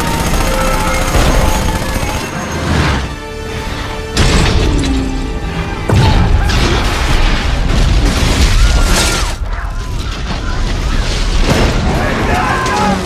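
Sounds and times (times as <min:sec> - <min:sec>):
film music score: 0:00.0 - 0:13.0
heavy explosions: 0:05.8 - 0:12.4.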